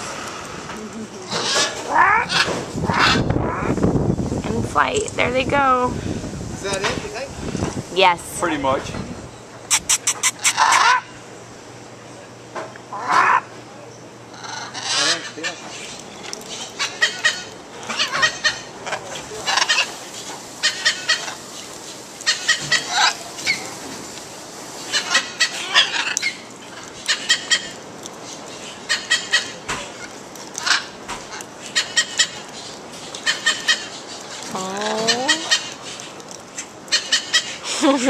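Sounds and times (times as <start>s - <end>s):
parrots chattering: 1.3s - 3.8s, 9.7s - 11.2s, 12.9s - 13.5s, 14.3s - 23.8s, 24.8s - 38.0s.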